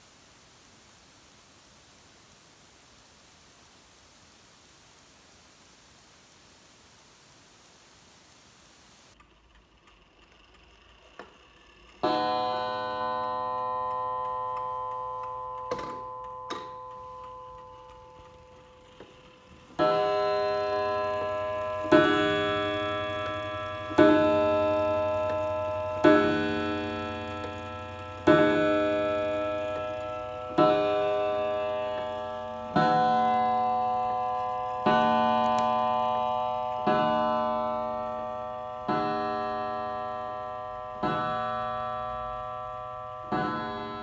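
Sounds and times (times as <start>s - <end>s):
clock gong striking: 12.0s - 44.0s.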